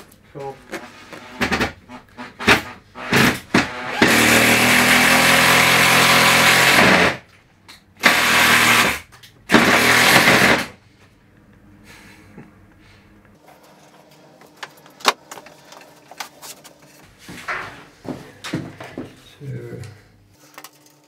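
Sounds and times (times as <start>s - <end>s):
power tool motor running: 3.0s - 7.2s, 8.0s - 10.7s.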